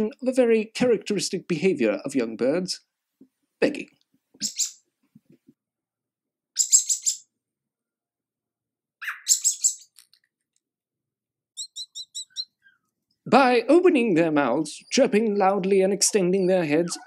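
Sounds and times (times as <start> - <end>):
bird chick chirping: 4.4 - 4.8, 6.6 - 7.3, 9.0 - 10.0, 11.6 - 12.8.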